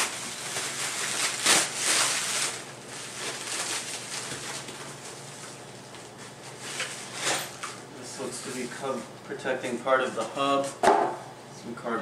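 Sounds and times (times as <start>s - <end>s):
plastic packaging crinkling: 0.0s - 7.2s.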